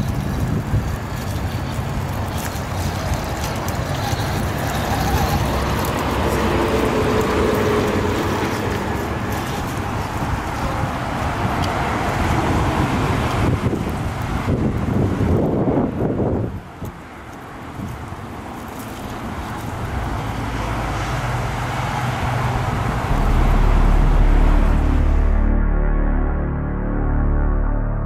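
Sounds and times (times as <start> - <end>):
electric motor and gears whining: 0.0 - 10.8
wood chips crackling under tyres: 0.0 - 23.9
outdoor rumble: 0.0 - 26.4.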